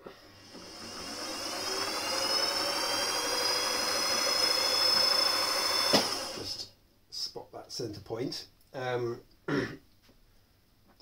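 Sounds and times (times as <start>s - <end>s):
milling machine motor whining: 0.0s - 6.6s.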